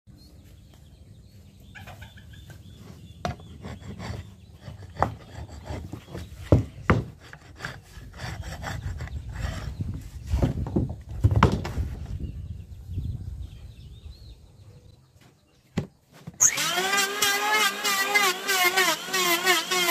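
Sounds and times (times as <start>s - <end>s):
wood beam knocking and scraping: 3.2s - 12.2s.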